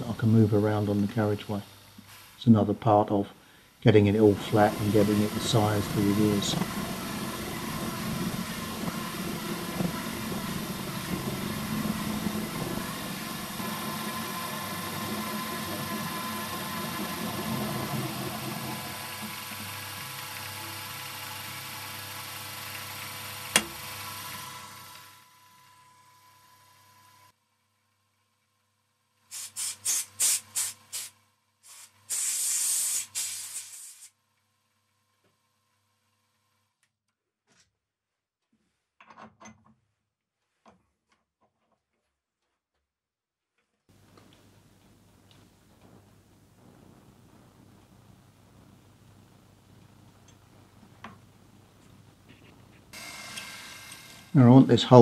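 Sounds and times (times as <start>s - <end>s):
milling machine spindle running: 3.9s - 26.2s, 53.0s - 55.0s
drill boring into metal: 4.1s - 25.4s, 31.7s - 34.1s, 53.0s - 55.0s
compressed air blow gun blasting: 4.2s - 17.0s, 29.3s - 34.1s, 52.9s - 55.0s.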